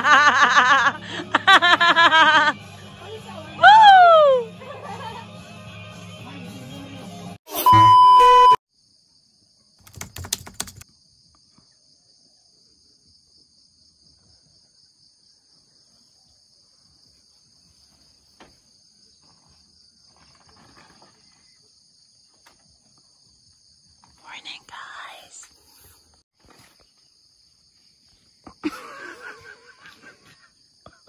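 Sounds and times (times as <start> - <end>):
insect chorus: 8.7 - 9.8, 10.8 - 31.0.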